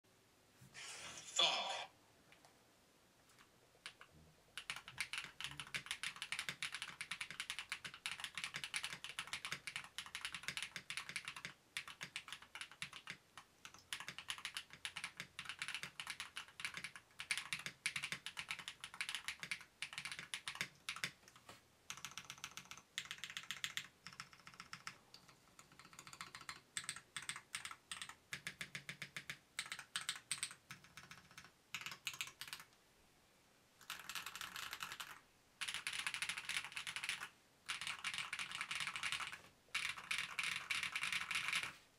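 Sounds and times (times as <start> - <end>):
mechanical keyboard typing: 3.3 - 32.7, 33.8 - 41.7.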